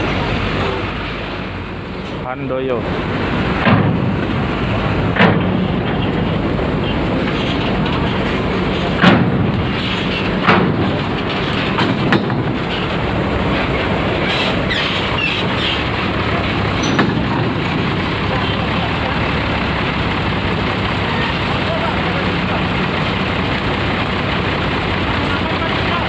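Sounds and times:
bus engine driving past: 0:00.0 - 0:26.0
loud knocks and clanks: 0:03.4 - 0:18.5.

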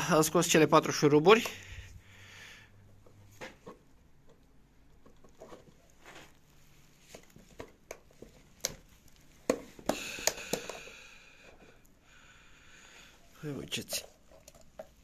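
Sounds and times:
sharp plastic snaps: 0:07.6 - 0:10.8.

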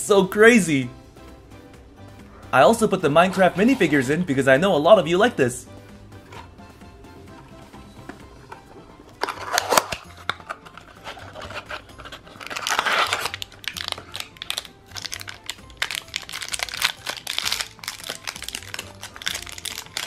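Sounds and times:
foil bag tearing and crinkling: 0:09.4 - 0:10.0, 0:11.6 - 0:20.0.

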